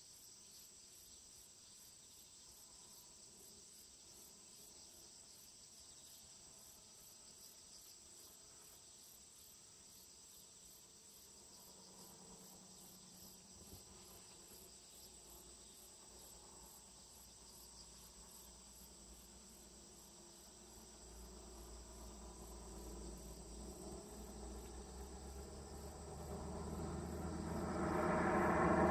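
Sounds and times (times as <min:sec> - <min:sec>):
crickets chirping: 0:00.0 - 0:28.9
low rumble: 0:21.6 - 0:28.9.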